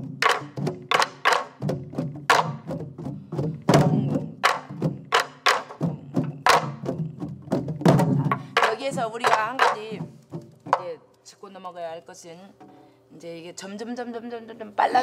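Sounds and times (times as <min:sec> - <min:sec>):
stick strikes on wooden drum shell: 0:00.0 - 0:02.8, 0:03.4 - 0:11.2.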